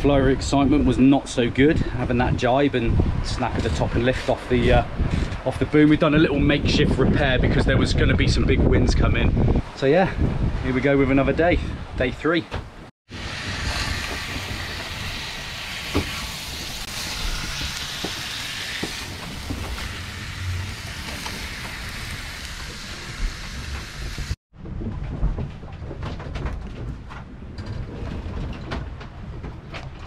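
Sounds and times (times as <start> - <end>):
fish sizzling in frying pan: 13.3 - 24.4.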